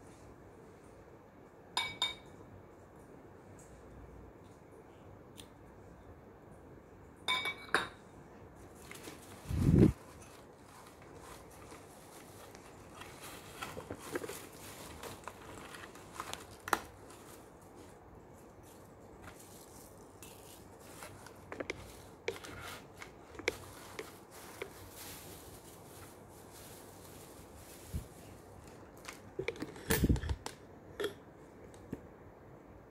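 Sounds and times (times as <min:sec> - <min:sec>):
shredded paper rustling: 0:08.8 - 0:29.3.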